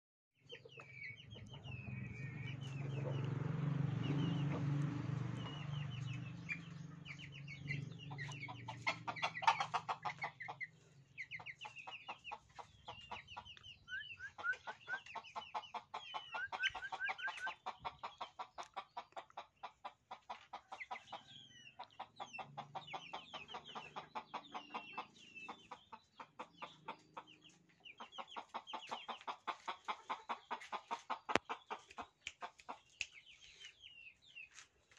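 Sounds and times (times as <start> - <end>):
chickens clucking: 0.4 - 34.9
low rumble: 1.4 - 8.5
high chirps: 13.4 - 15.2.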